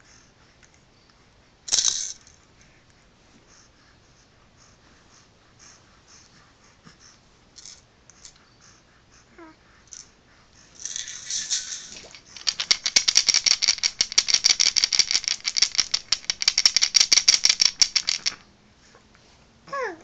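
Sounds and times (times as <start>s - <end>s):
shushing toy rattle: 1.7s - 2.4s, 10.7s - 18.4s
wooden beads clicking on ring: 10.8s - 18.4s.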